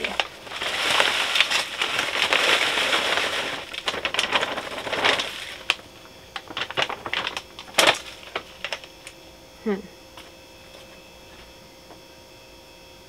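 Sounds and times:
potting mix pouring: 0:00.0 - 0:08.8
plastic bag crinkling: 0:00.0 - 0:09.2.

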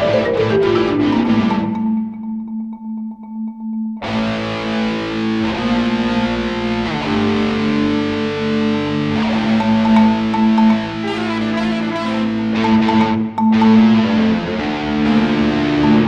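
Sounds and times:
electric guitar track: 0:00.0 - 0:02.6, 0:04.0 - 0:16.0
marimba fast repeated notes: 0:00.0 - 0:04.4, 0:08.6 - 0:16.0.

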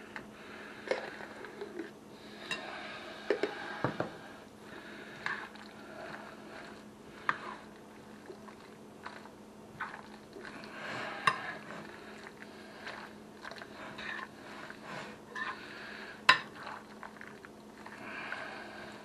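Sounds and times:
soft wet squishing: 0:04.4 - 0:19.0.

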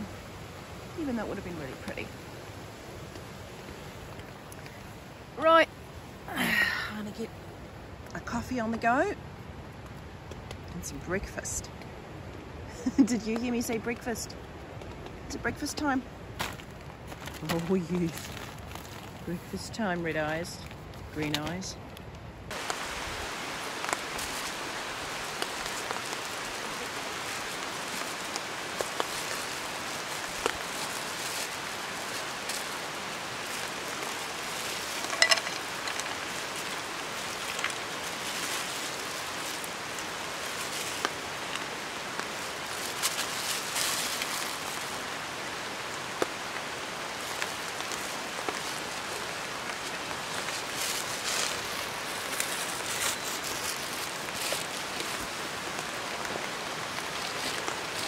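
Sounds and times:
steady rain falling: 0:00.0 - 0:58.0
drips and small ticks: 0:04.1 - 0:04.8.

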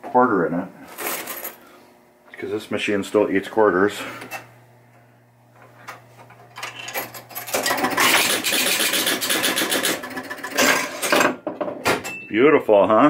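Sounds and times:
pinball machine clatter: 0:06.6 - 0:11.4.

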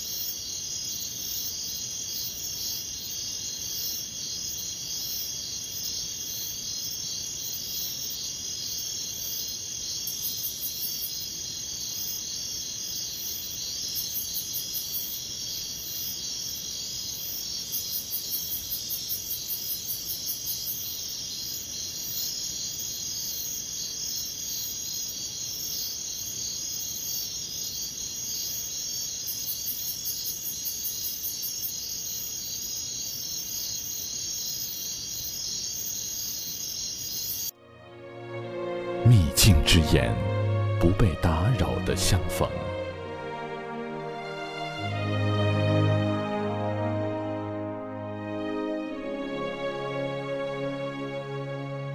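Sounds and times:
crickets chirping: 0:00.0 - 0:37.6
rapidly pulsing insect call: 0:00.0 - 0:37.6.

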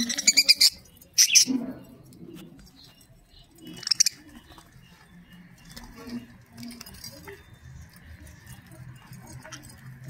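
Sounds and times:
budgerigar chirp: 0:00.0 - 0:01.5
birds rustling and ticking: 0:00.0 - 0:10.0.

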